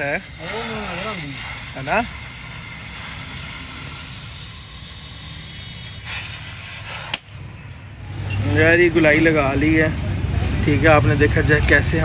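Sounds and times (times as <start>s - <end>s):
arc welding crackling hiss: 0.0s - 7.4s.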